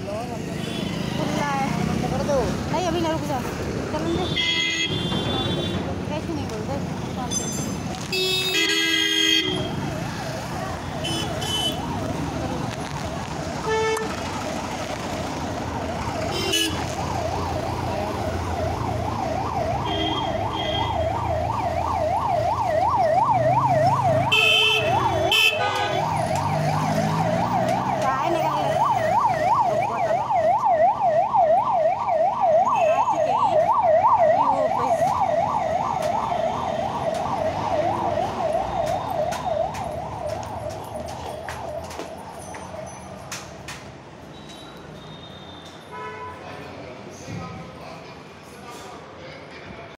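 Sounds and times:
street traffic: 0.0 - 49.9
siren wailing: 14.5 - 25.3, 25.9 - 43.2.

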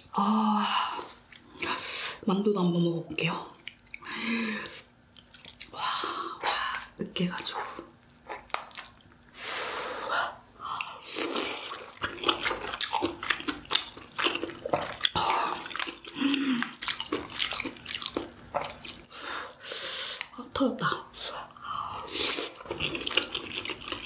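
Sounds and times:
person chewing wetly: 3.6 - 4.1, 4.7 - 5.8, 7.4 - 9.4, 10.7 - 20.4, 21.3 - 24.0.

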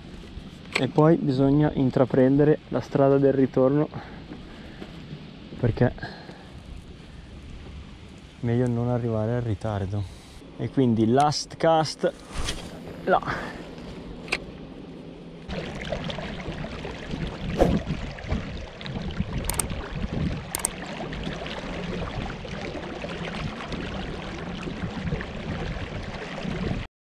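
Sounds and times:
water lapping against kayak hull: 15.4 - 26.9
sharp high clicks: 19.5 - 19.7.

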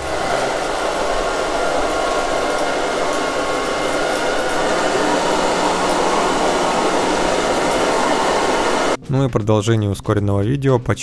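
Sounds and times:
robot vacuum whirring: 0.0 - 9.0.

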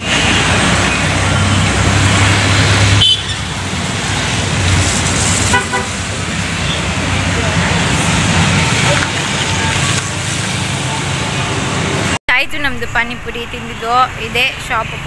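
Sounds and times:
passing traffic: 0.0 - 15.0
car horn toot: 3.0 - 3.5, 5.5 - 6.0.

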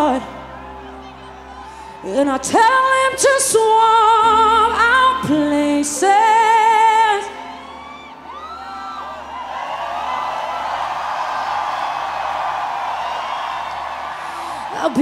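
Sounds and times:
woman singing with vibrato: 2.0 - 7.4.

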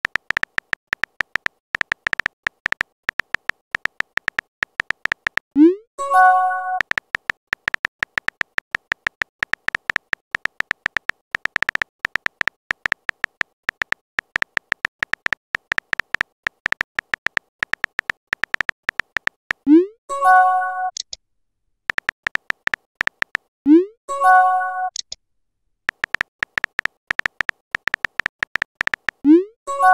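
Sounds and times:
phone keyboard typing clicks: 0.0 - 5.6, 6.2 - 19.7, 21.9 - 23.5, 25.9 - 29.9
message sent chime: 5.6 - 6.9, 20.1 - 20.9, 24.1 - 24.9, 29.7 - 29.9.

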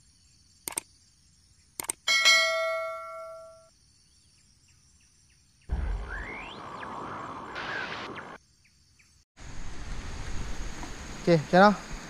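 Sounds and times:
bird chirping: 3.2 - 9.2.

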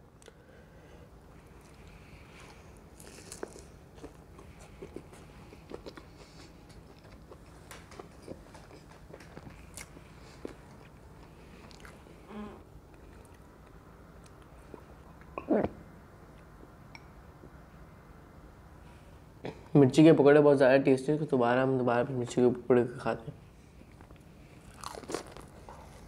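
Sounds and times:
person chewing crunchy food: 1.4 - 12.3, 23.9 - 26.0.

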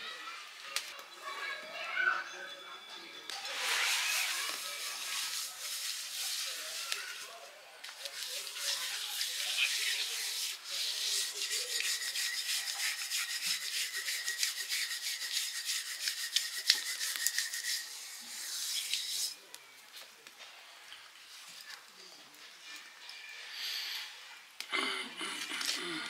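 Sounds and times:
hands rubbing paste on metal pot: 3.5 - 7.3, 7.9 - 19.4.

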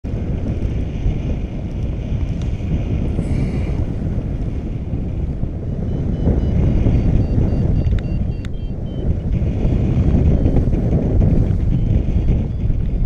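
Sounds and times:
wind buffeting microphone: 0.0 - 13.0
short high beeps: 5.8 - 9.2.

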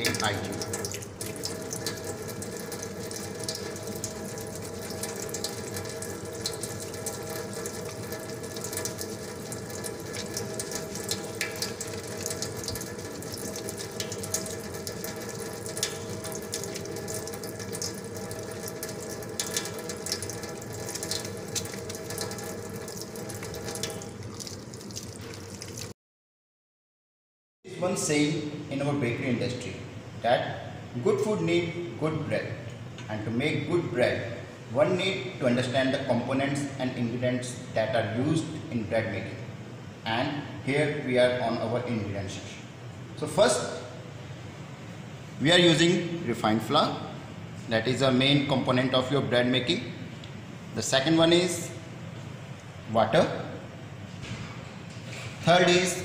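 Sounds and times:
steady hum: 0.0 - 25.8
tap water running into a sink: 0.0 - 25.9.

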